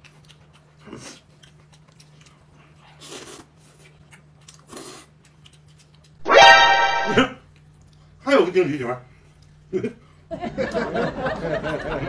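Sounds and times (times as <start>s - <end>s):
person eating: 0.0s - 6.9s.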